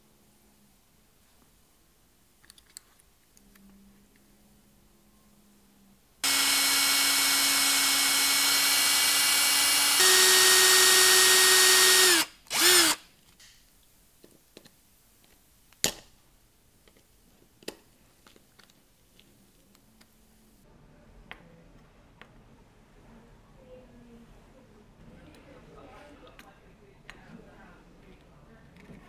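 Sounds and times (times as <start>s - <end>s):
electric drill motor whine: 6.2s - 13.0s.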